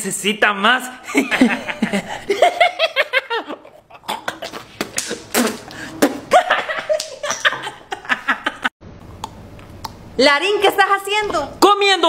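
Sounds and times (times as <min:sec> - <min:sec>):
man laughing: 0:01.0 - 0:04.8, 0:06.2 - 0:08.7.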